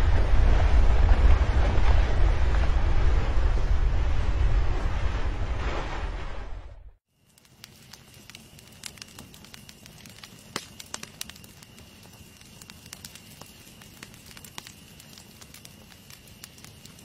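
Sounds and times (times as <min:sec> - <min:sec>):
flames rustling: 0:00.0 - 0:17.0
campfire crackling and popping: 0:07.1 - 0:17.0.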